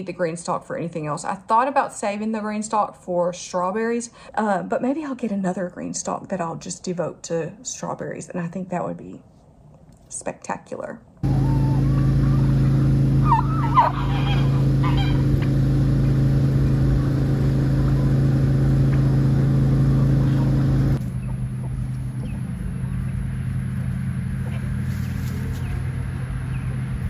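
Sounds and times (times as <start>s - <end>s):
turkeys calling: 11.2s - 16.2s, 19.9s - 25.9s
motor hum: 11.2s - 27.0s.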